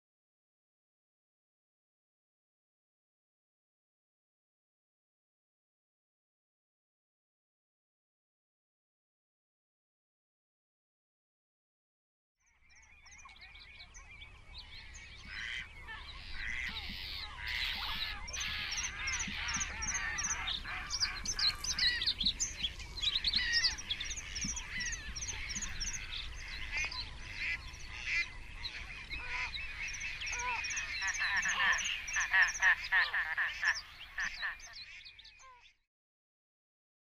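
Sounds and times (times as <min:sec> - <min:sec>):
chorus of birds calling: 0:12.5 - 0:35.8.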